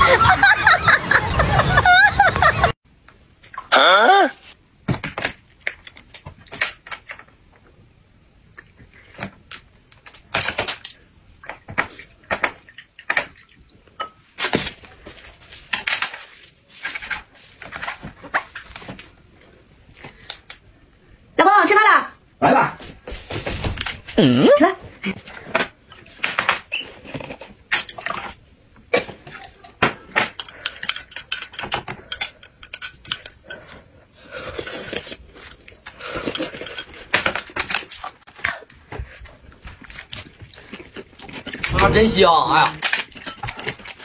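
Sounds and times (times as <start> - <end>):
tableware clicking and knocking: 29.0 - 33.8.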